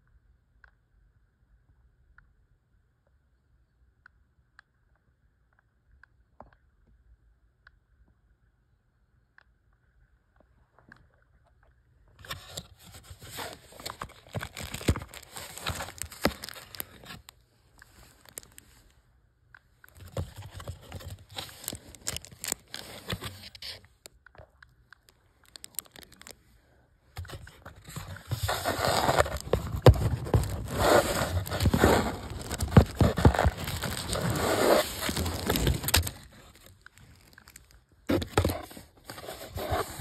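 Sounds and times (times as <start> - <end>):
paper and cardboard rustling: 12.2 - 18.8, 20.0 - 23.8, 27.2 - 40.0
fingers rubbing on microphone: 27.2 - 37.3.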